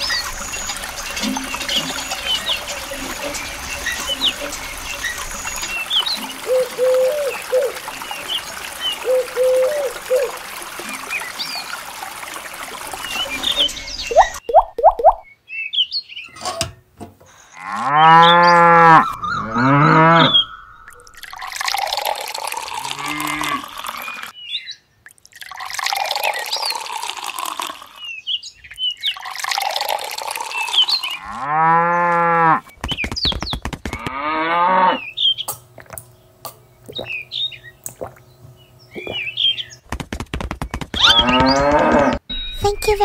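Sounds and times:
water pouring into trough: 0.0 - 15.2, 18.6 - 24.4, 25.0 - 28.1, 28.7 - 31.6
cattle mooing: 17.6 - 20.5, 22.9 - 23.8, 31.2 - 32.6, 34.0 - 35.0, 41.1 - 42.2.

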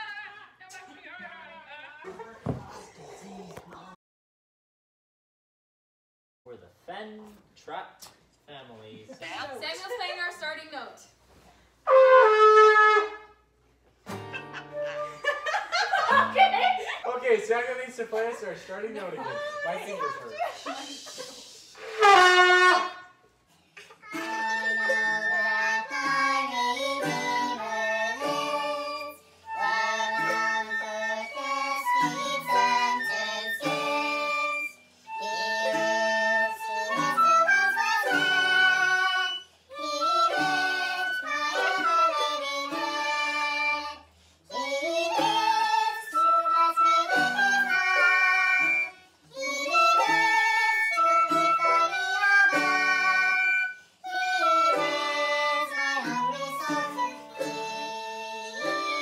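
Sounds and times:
trumpet note: 11.9 - 13.4, 21.8 - 23.2
acoustic guitar ukulele and flute: 11.9 - 15.5, 24.0 - 59.0
group singing: 24.2 - 59.0.

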